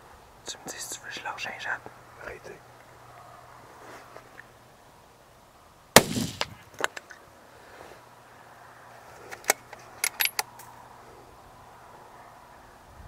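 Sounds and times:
gunshot with echo: 6.0 - 6.6.

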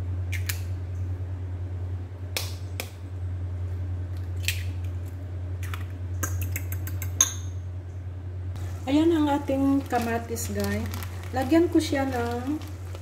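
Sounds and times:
steady low hum: 0.0 - 13.0
eggshells cracking: 9.7 - 13.0.

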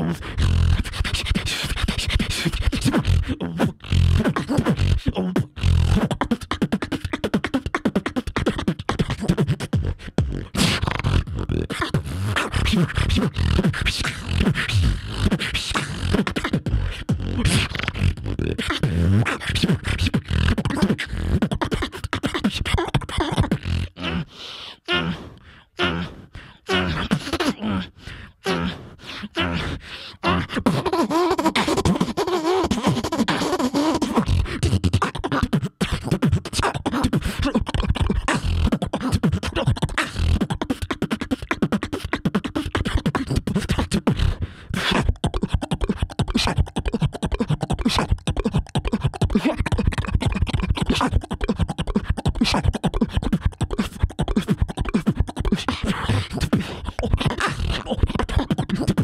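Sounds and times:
person beatboxing: 0.0 - 59.0.

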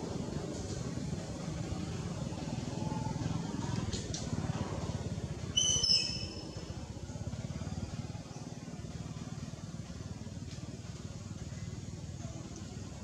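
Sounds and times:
steady low hum: 0.0 - 13.0
baby monkey squeaking: 5.6 - 6.4.

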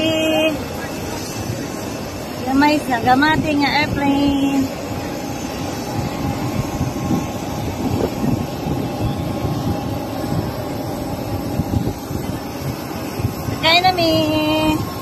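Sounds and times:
aircraft low rumble: 0.0 - 15.0
faint steady whine: 0.0 - 15.0.

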